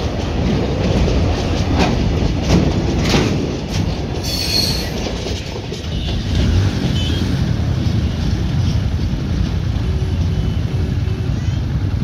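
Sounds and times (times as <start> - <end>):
freight train rumbling past: 0.0 - 12.0
train wheels squealing: 4.2 - 5.0.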